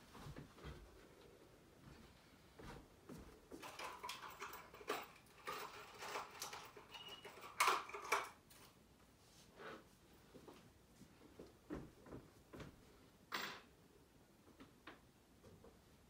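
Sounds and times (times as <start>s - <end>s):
small objects clicking and rattling: 3.6s - 8.4s.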